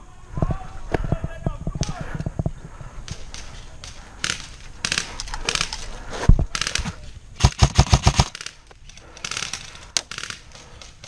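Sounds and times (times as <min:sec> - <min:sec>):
airsoft rifle firing: 0:06.5 - 0:08.6, 0:09.2 - 0:10.6
distant airsoft fire rattles: 0:06.6 - 0:11.0.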